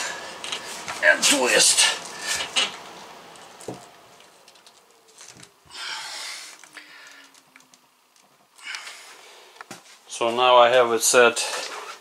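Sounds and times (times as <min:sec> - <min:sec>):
plastic pipe clicks and rustling: 0:02.4 - 0:05.5.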